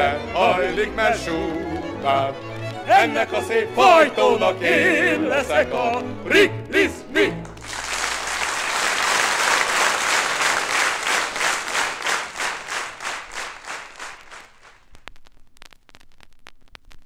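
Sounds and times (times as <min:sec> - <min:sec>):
audience applause: 0:07.4 - 0:14.8.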